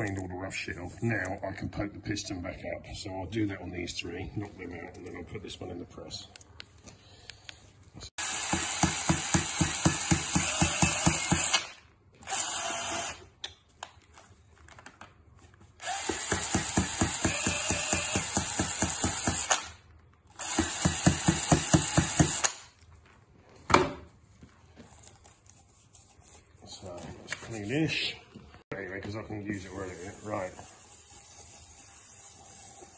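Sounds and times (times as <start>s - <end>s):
drill spinning cylinder hone: 8.2s - 13.2s, 15.8s - 19.6s, 20.4s - 22.6s, 29.6s - 32.9s.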